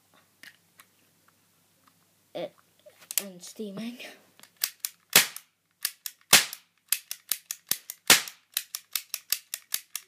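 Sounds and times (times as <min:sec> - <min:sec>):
cap gun clicking: 0:04.4 - 0:10.0
cap gun bangs: 0:06.3 - 0:06.6, 0:08.1 - 0:08.4.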